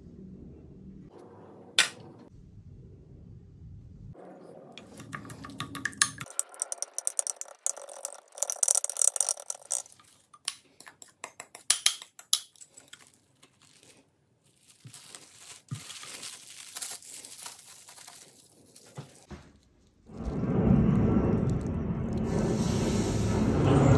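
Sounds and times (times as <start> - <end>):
utensil scraping glass bowl: 4.8 - 10.4
plastic wrap crinkling: 6.2 - 10.5, 12.5 - 20.8.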